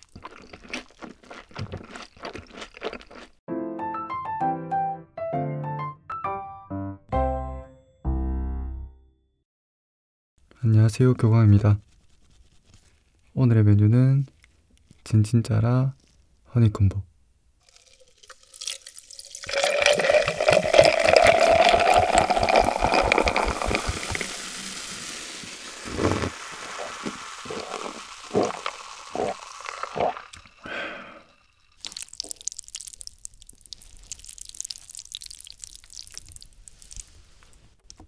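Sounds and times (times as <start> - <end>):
liquid glugging into a jar: 17.6 - 37.1
soda fizzing: 17.6 - 37.4
wet sticky noodle sounds: 25.5 - 30.7, 31.8 - 37.7
swallowing gulps: 25.8 - 32.8.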